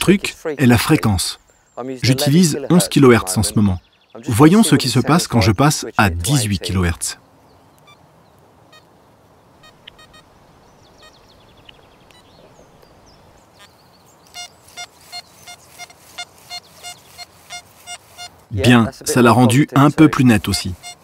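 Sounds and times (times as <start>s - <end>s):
metal detector beeps: 9.6s - 10.2s.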